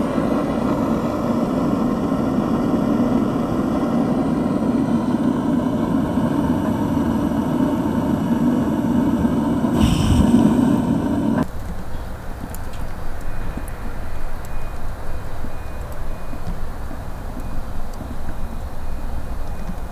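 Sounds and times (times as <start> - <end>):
gas torch flame burning: 0.0 - 11.7.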